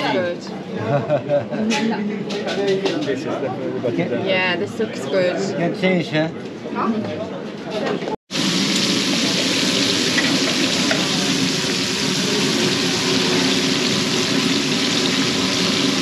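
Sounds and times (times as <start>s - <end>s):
fish sizzling: 8.3s - 16.0s.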